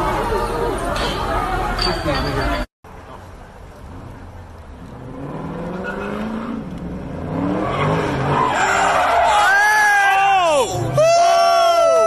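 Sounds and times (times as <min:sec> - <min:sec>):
car engine revving hard: 0:04.9 - 0:08.7.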